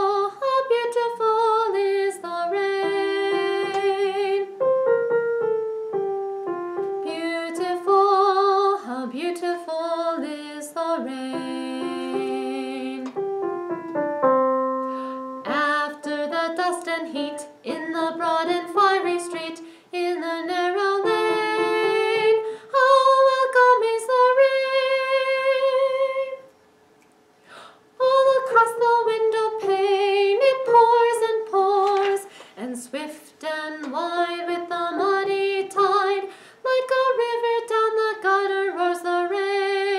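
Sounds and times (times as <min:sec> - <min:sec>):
woman singing: 0:00.0 - 0:04.6, 0:07.0 - 0:13.2, 0:14.9 - 0:26.5, 0:28.0 - 0:39.9
piano accompaniment: 0:00.0 - 0:09.4, 0:10.0 - 0:24.7.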